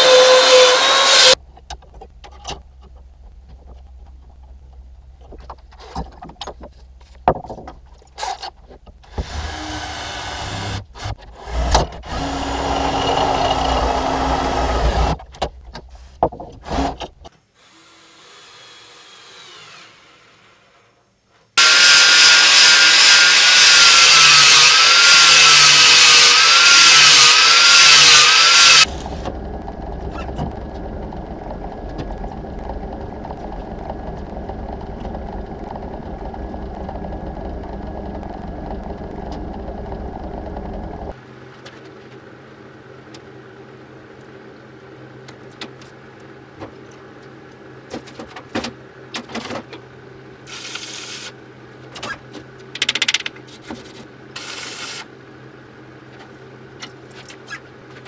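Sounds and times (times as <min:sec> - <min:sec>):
angle grinder grinding steel: 0:00.0 - 0:01.4, 0:12.1 - 0:15.2, 0:21.6 - 0:41.1
workshop noise: 0:00.0 - 0:01.4, 0:21.6 - 0:41.2
steady hum: 0:28.8 - 0:41.6.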